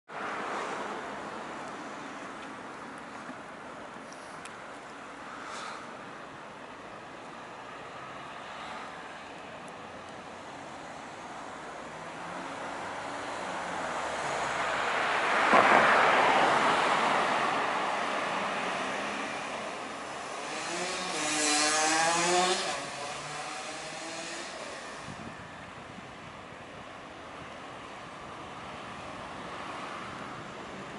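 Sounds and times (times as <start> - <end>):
cars passing: 0.1 - 26.2, 27.4 - 30.9
engine revving pulling away: 20.2 - 25.1.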